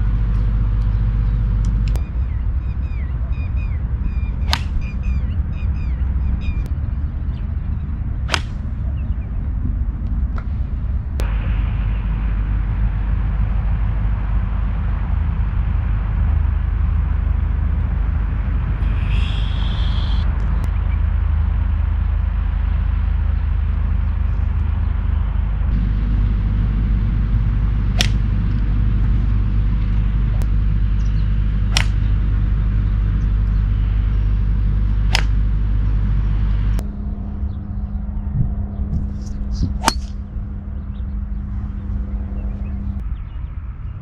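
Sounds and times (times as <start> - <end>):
steady low rumble: 0.0 - 44.0
golf clubs striking balls: 4.4 - 4.9, 8.2 - 9.0, 27.9 - 28.6, 31.5 - 32.5, 34.9 - 35.6, 39.0 - 40.3.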